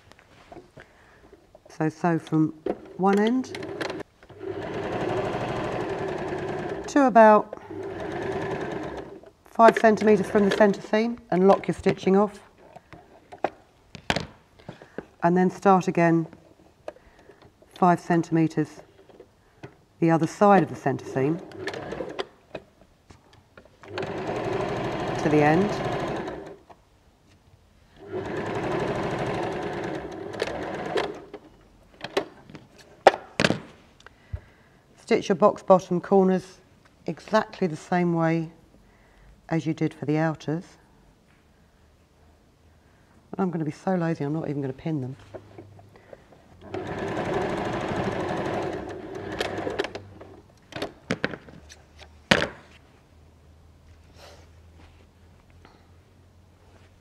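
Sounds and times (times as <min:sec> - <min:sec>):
sewing machine stitching: 0:02.8 - 0:11.8, 0:20.6 - 0:22.3, 0:23.8 - 0:26.6, 0:28.0 - 0:31.5, 0:46.6 - 0:50.4
sewing machine clicks: 0:21.4 - 0:22.3, 0:23.9 - 0:26.6, 0:28.0 - 0:31.4.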